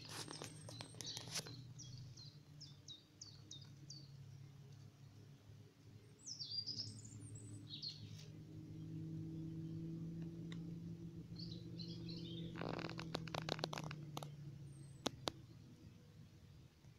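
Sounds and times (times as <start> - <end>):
brief rustle: 0.0 - 1.6, 12.5 - 15.4
birds chirping and singing: 0.0 - 4.5, 6.1 - 9.9, 11.3 - 15.6.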